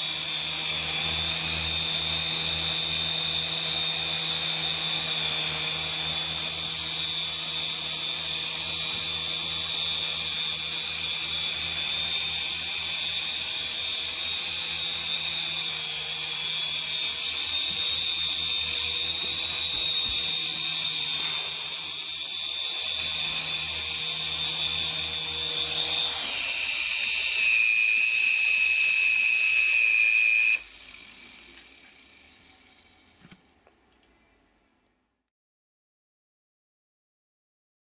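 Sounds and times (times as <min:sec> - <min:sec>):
toy helicopter motor whining: 0:00.0 - 0:33.5.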